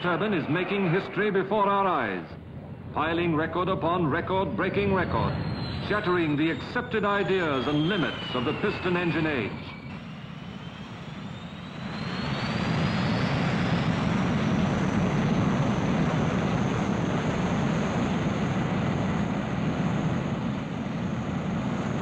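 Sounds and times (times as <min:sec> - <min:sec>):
high engine whine rising: 0:00.0 - 0:22.0
jet engines rushing: 0:00.0 - 0:22.0.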